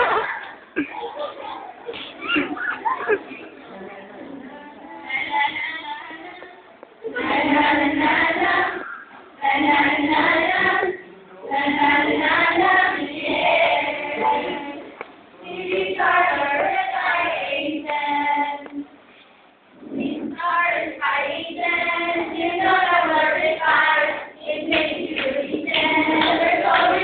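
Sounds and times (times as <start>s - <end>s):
group singing in unison: 7.1s - 18.9s, 20.0s - 27.0s.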